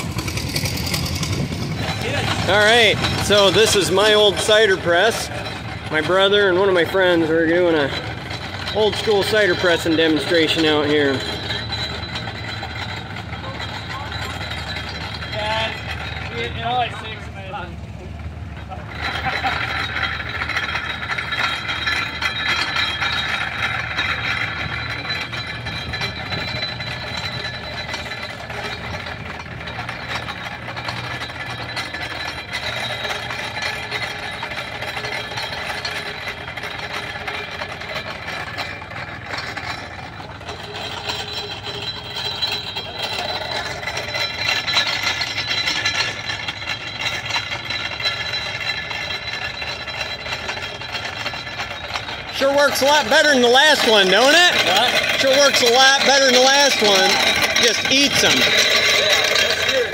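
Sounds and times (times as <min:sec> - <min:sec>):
apple grinder crushing apples: 0:39.8 - 0:59.9.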